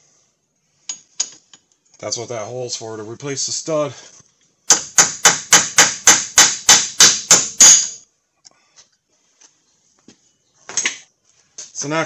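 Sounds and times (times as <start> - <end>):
hammer striking metal: 4.7 - 8.0.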